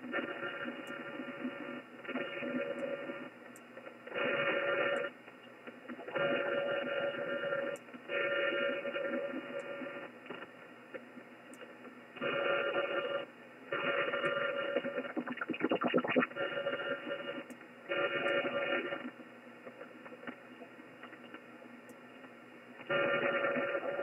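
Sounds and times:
radio interference buzz in bursts: 12.2s - 19.1s, 22.9s - 24.0s
radio band hiss: 13.8s - 21.6s, 22.3s - 24.0s.

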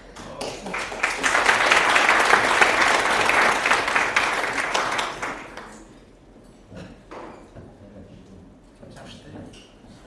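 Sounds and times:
audience applauding: 0.3s - 5.8s.

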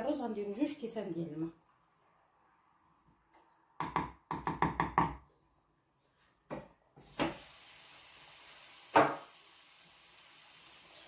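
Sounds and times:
steady hiss: 7.0s - 11.0s
water pouring into a pot: 7.0s - 11.0s.

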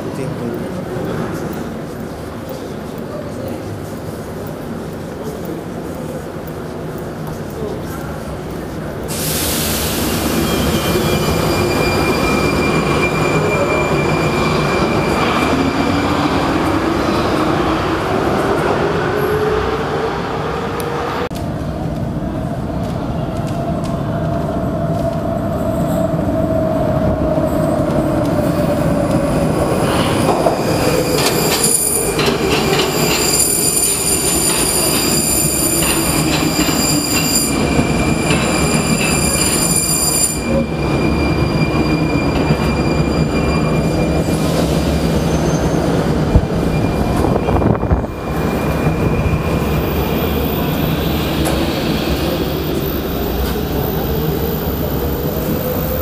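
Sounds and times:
train wheel squeal: 9.2s - 17.2s, 29.7s - 56.0s.

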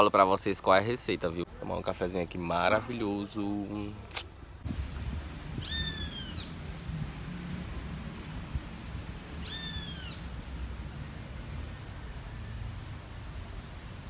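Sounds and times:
low outdoor rumble: 0.0s - 14.0s
bird call rising and falling: 4.2s - 6.6s, 7.8s - 10.3s.

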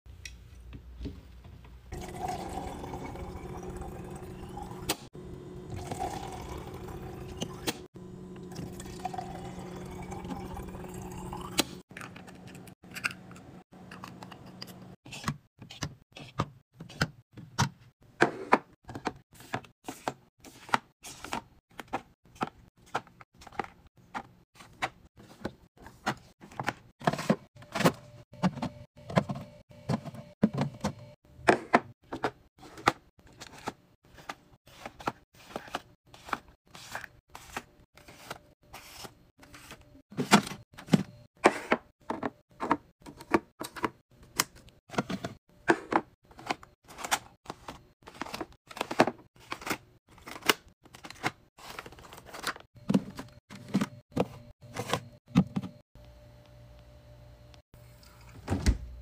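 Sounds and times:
water filling bottles: 1.9s - 11.8s.

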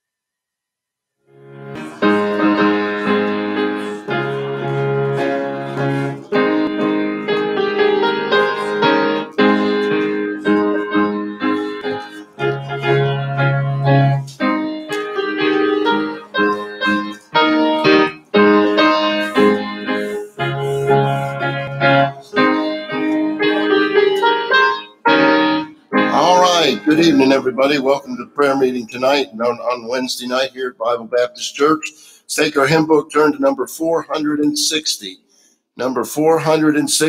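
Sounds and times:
piano playing chords: 1.3s - 30.0s.

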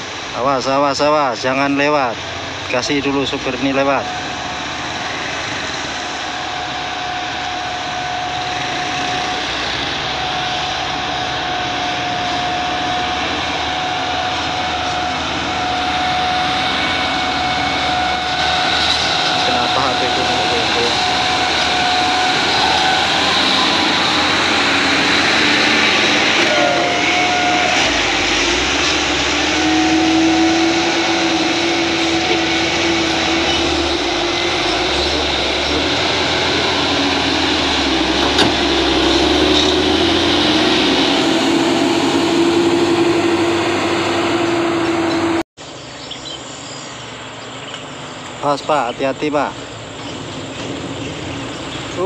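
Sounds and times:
truck diesel engines droning: 0.0s - 52.0s.

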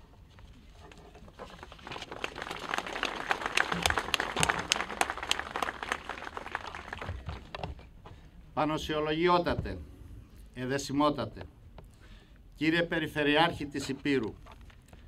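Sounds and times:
audience applauding: 1.6s - 7.7s.

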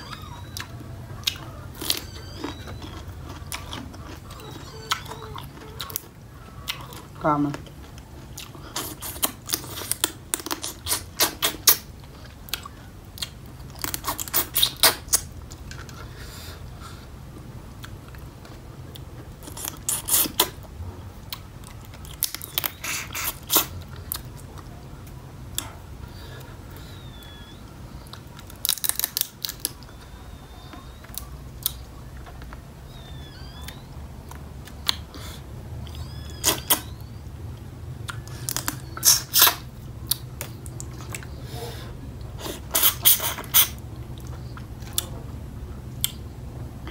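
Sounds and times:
sucking and lip-smacking: 8.3s - 32.5s, 33.3s - 45.2s.

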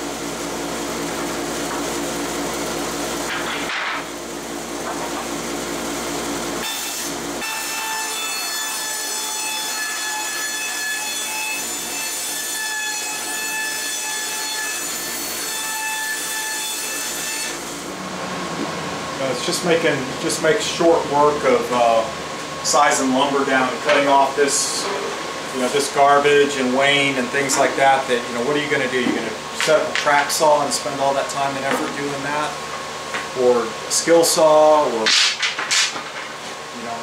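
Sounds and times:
steady saw whine: 16.9s - 35.1s.

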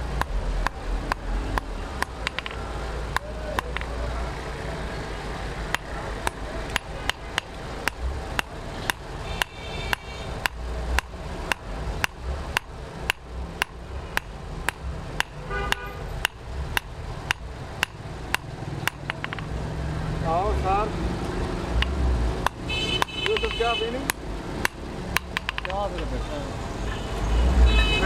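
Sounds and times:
hammer striking chisel on steel: 0.2s - 4.0s, 5.6s - 19.5s, 21.8s - 26.1s.

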